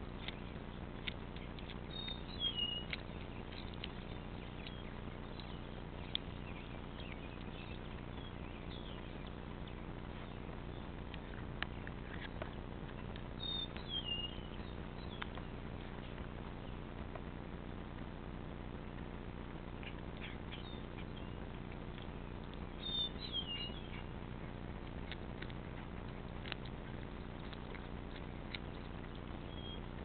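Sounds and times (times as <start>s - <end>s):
sharp clicks: 0.1s - 18.1s.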